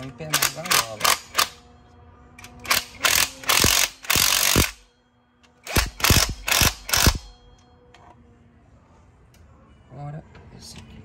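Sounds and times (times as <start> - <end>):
impact wrench spinning bolts: 2.4 - 4.8, 5.6 - 7.3.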